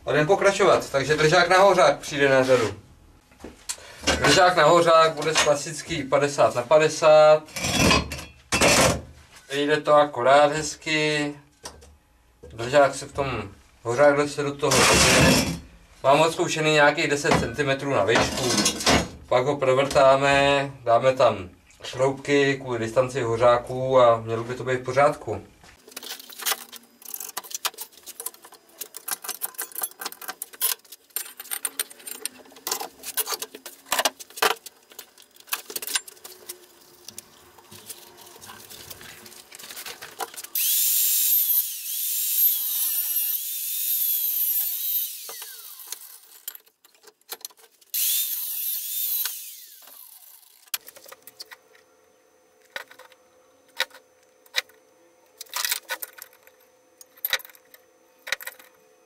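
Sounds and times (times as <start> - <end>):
metal tools clicking and knocking: 25.9 - 36.6
angle grinder cutting steel: 40.6 - 46.5, 48.0 - 50.7.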